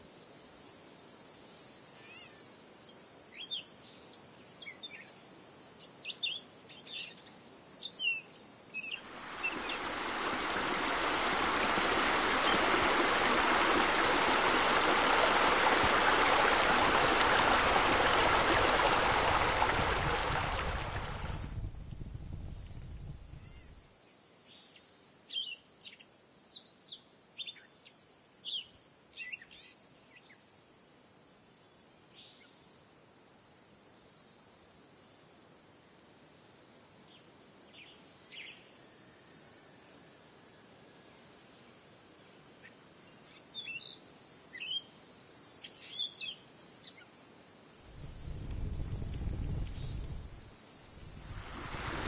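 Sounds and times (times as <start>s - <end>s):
high insect trill: 8.5s - 23.9s, 47.0s - 52.0s
low water-like rushing: 9.0s - 23.7s, 47.9s - 52.0s.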